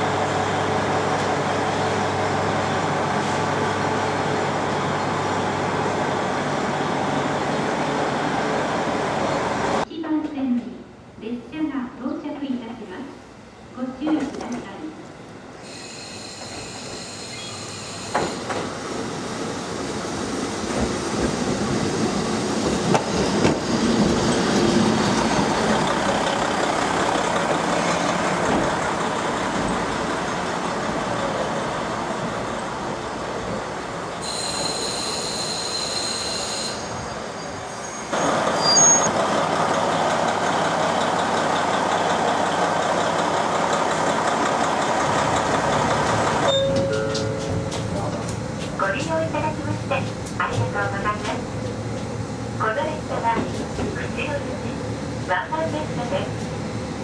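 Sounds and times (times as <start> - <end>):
train engine and wheels on board: 0.0 - 57.0
train wheels and brakes squealing: 15.6 - 18.6, 34.1 - 39.2.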